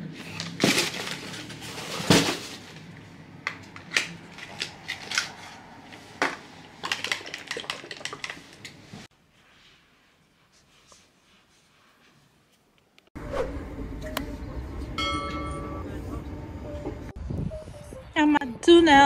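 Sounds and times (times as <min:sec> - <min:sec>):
packaging clicks and crinkles: 0:03.6 - 0:05.6.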